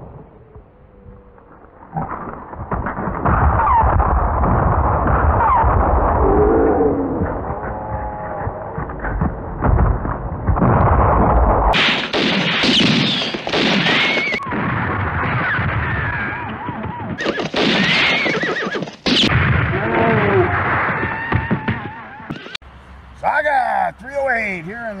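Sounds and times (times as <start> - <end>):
commotion: 0.1 - 22.6
horses whinnying: 5.3 - 9.4, 15.4 - 22.6
hooves: 6.8 - 11.0, 16.0 - 19.3.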